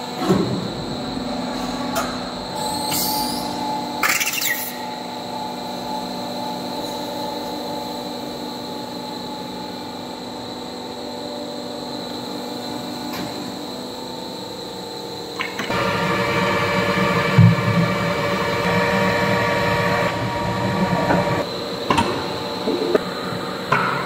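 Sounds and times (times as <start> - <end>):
machine humming and whining: 0.0 - 24.0.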